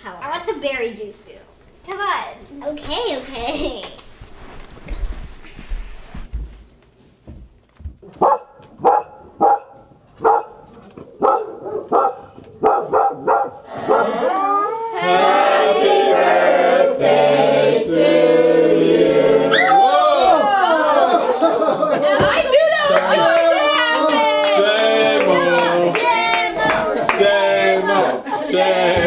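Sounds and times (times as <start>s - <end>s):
dog barking: 8.2s - 14.2s.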